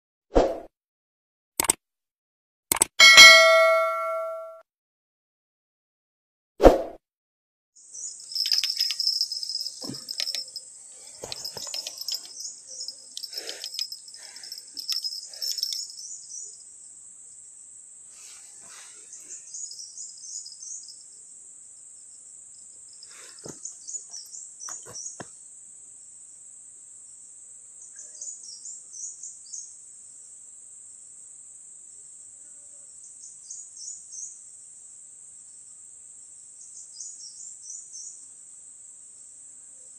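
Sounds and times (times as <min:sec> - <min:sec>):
sharp click: 0:01.6 - 0:01.8, 0:02.7 - 0:04.4
insect chirping: 0:07.8 - 0:32.3, 0:32.9 - 0:39.9
insects droning: 0:07.8 - 0:39.9
knocks and rustles: 0:08.4 - 0:12.3.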